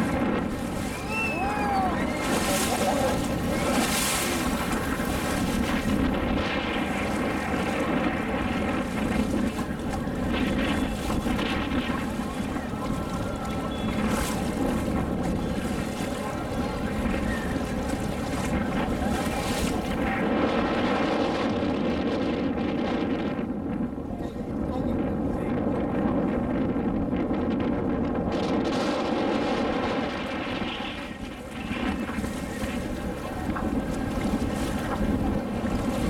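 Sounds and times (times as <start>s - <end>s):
water rushing past: 0.0s - 21.8s
boat engine droning: 0.0s - 27.2s, 27.8s - 36.0s
wind buffeting microphone: 0.0s - 36.0s.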